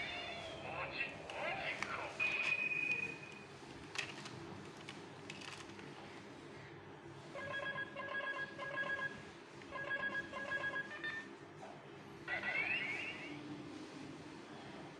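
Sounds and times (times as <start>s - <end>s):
electronic telephone ring: 7.4s - 11.2s.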